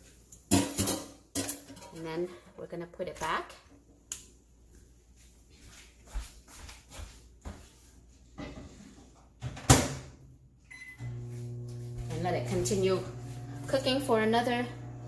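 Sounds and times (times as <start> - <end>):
microwave humming: 10.7 - 15.0.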